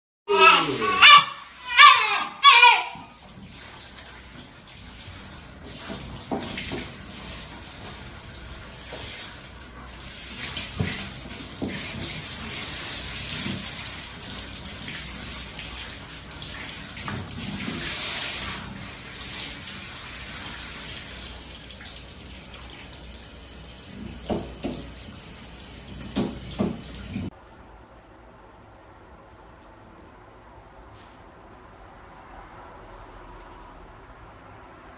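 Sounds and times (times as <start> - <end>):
shower spraying on wet fur: 3.0 - 27.3.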